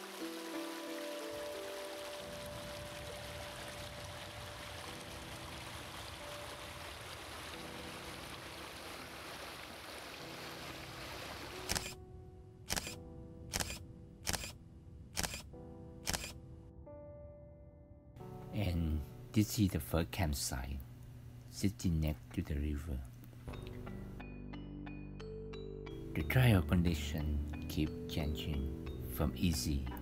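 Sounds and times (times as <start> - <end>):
stream running over rocks: 0.0 - 11.7
soft background music: 0.0 - 30.0
camera shutter clicks: 11.6 - 12.0, 12.7 - 14.6, 15.2 - 16.4.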